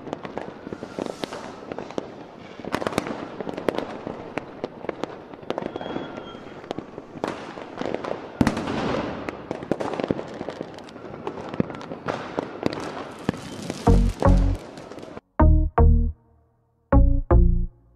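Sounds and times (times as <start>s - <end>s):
fireworks bangs and crackles: 0.0s - 15.2s
loud firework bang: 7.2s - 9.9s.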